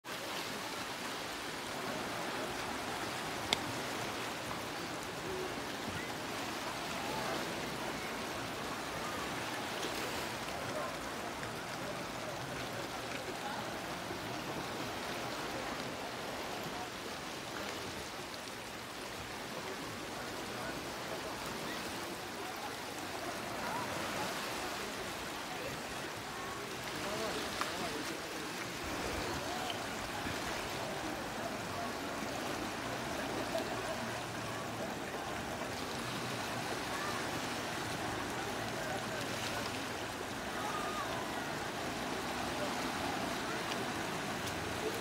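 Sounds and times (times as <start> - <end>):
waves washing on pebble shore: 19.1 - 45.0.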